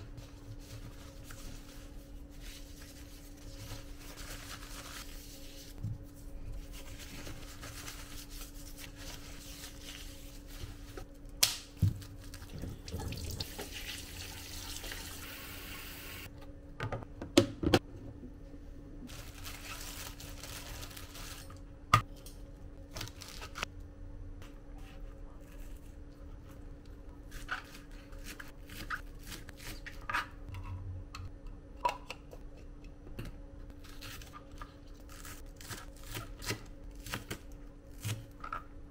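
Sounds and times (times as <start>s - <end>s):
tap water running: 12.4s - 16.3s.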